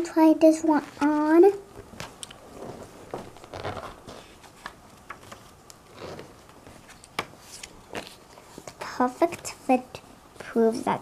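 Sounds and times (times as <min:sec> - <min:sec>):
paper pages rustling: 0:00.8 - 0:08.8.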